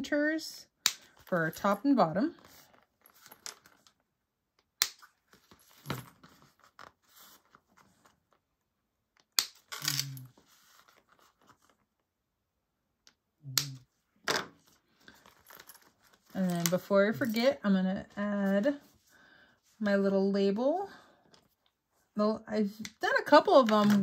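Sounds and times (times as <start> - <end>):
soft handling rustle: 5.1 - 8.5, 10.2 - 12.0, 14.6 - 20.0.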